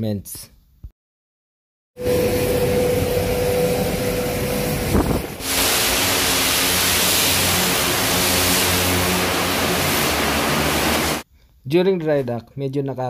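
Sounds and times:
high-pressure water jet hissing: 2.0 - 11.2
low pump drone: 2.0 - 11.2
mechanical hum with held tone: 2.0 - 11.2.

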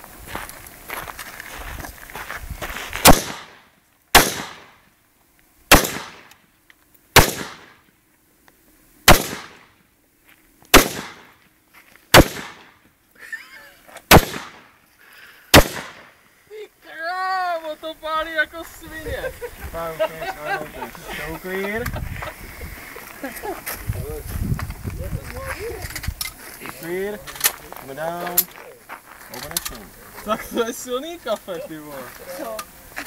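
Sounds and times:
rifle shots echoing: 3.0 - 3.6, 4.2 - 4.8, 5.7 - 6.4, 7.2 - 7.8, 9.1 - 9.7, 10.7 - 11.3, 12.1 - 12.7, 14.1 - 14.7, 15.5 - 16.2.

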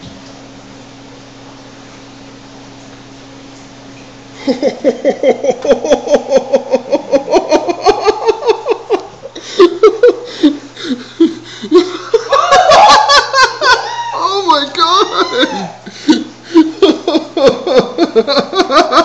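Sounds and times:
person laughing hard: 4.4 - 19.0.

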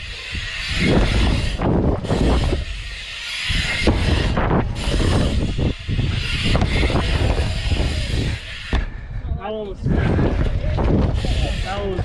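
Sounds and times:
bike tyre rumble: 0.0 - 12.0
wind buffeting microphone: 0.0 - 12.0.

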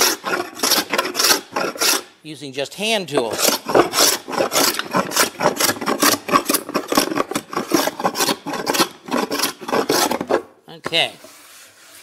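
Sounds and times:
steel scraper rasping on wood: 0.0 - 2.2, 3.2 - 10.6.

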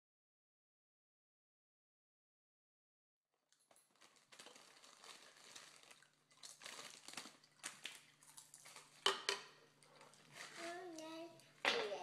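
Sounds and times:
plastic chip bag crinkling: 3.6 - 9.2, 9.8 - 11.2.

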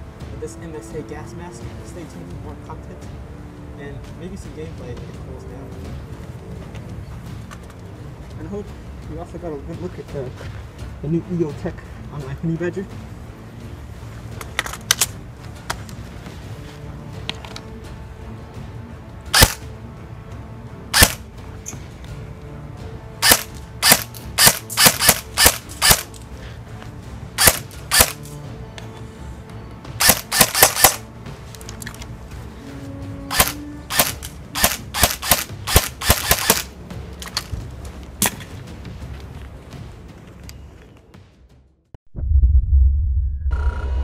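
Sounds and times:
background music: 0.0 - 41.9
airsoft rifle shots: 19.3 - 19.6, 20.9 - 21.2, 23.2 - 26.1, 27.4 - 28.2, 30.0 - 31.0, 33.3 - 36.7.

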